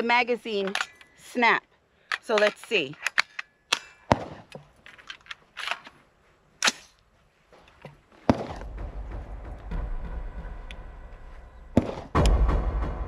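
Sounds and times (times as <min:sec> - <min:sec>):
rifle action metallic clacks: 0:00.4 - 0:01.2, 0:02.0 - 0:06.0, 0:06.6 - 0:07.0
steady low rumble: 0:08.3 - 0:13.0.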